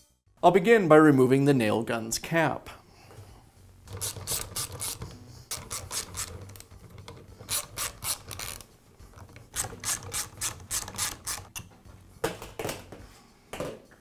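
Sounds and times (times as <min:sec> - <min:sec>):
socket ratchet clicking: 0:03.9 - 0:11.6.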